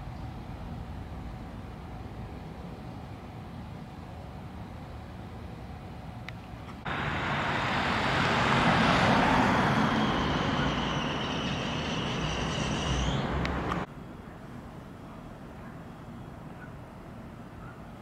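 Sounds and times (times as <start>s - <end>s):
vehicle driving past: 6.9s - 13.9s.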